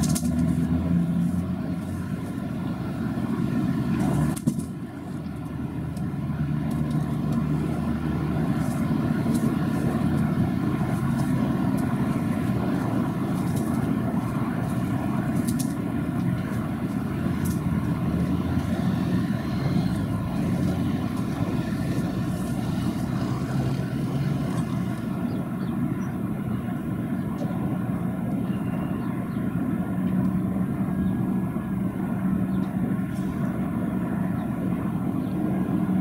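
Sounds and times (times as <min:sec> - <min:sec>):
low engine rumble: 0:00.0 - 0:36.0.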